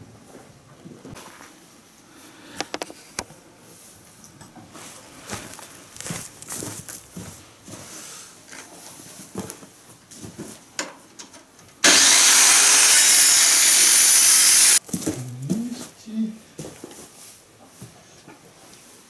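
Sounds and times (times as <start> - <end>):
circular saw cutting wood: 11.8 - 14.8.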